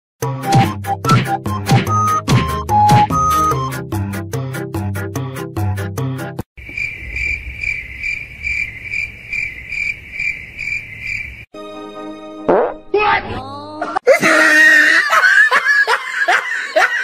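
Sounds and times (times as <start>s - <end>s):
rhythmic music: 0.2s - 3.9s
cricket chirping: 6.6s - 11.5s.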